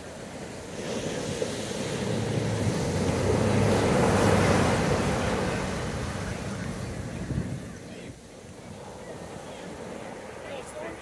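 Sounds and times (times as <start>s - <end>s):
ocean surf breaking: 0.0s - 11.0s.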